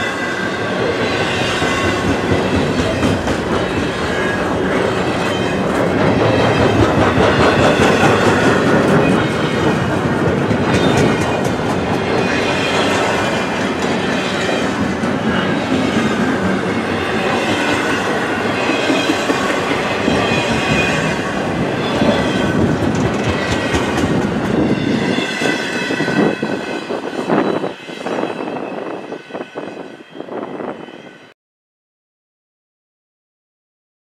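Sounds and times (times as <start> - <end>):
wheels clattering over rail joints: 1.7 - 24.8
high wheel squeal: 12.1 - 23.9, 24.6 - 31.3.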